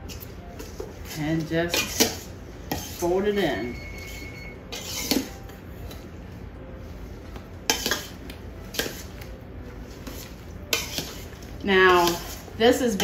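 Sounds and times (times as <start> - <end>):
whisk scraping metal bowl: 1.0 - 5.4, 8.7 - 9.3, 9.9 - 13.0.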